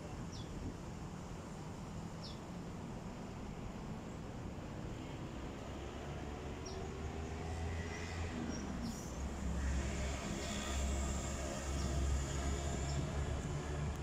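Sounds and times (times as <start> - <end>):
low rumble of traffic: 0.0 - 14.0.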